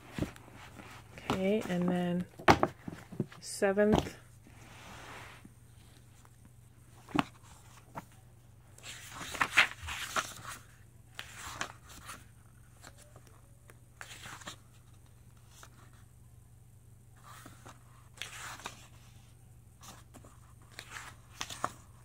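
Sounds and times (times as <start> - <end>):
book pages turning: 0.0 - 3.3, 5.4 - 8.2, 8.8 - 13.4, 14.0 - 16.0, 17.2 - 19.1, 19.8 - 22.0.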